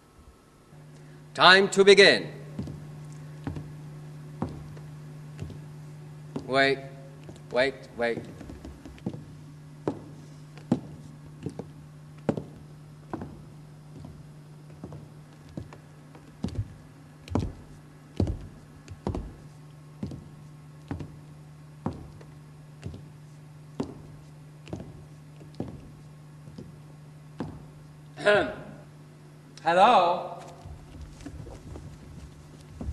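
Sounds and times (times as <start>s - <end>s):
steady low hum: 0.0s - 32.9s
dull knocks: 2.6s - 3.8s, 4.4s - 5.6s, 16.4s - 19.4s, 27.4s - 27.7s.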